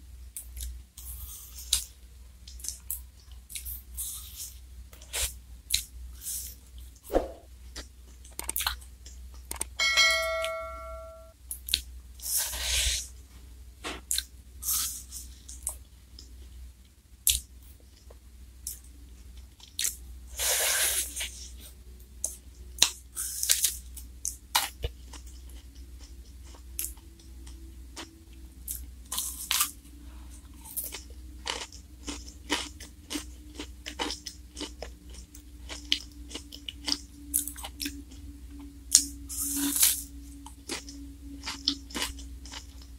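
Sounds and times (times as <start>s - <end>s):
wet chewing and crunching: 7.8s - 8.8s, 19.6s - 20.0s, 22.2s - 28.1s, 28.7s - 29.8s, 30.4s - 38.3s, 38.9s - 42.9s
short pitched chime: 9.8s - 11.3s.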